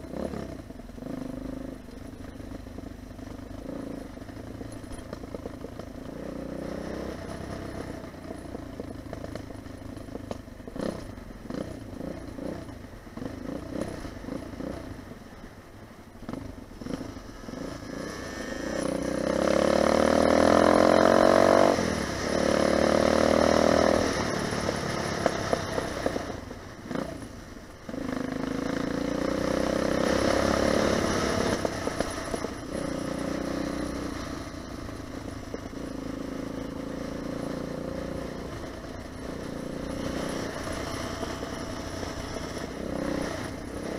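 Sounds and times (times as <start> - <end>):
dirt bike engine revving: 16.9 - 25.5, 27.9 - 34.3.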